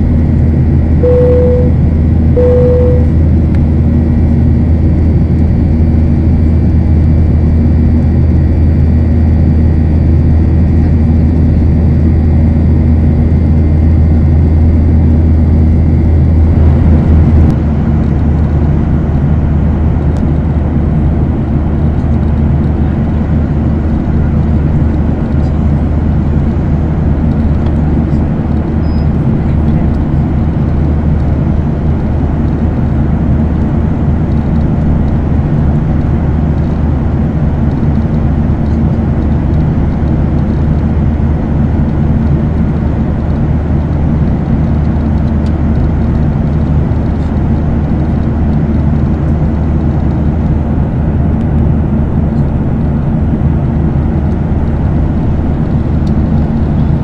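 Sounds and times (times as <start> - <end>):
low hum: 0.0 - 32.7
jet airliner cabin noise: 0.0 - 57.0.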